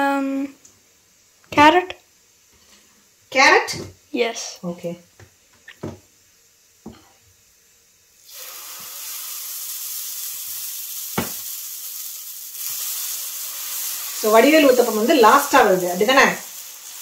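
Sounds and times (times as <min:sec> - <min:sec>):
batter sizzling on a griddle: 0:06.1 - 0:17.0.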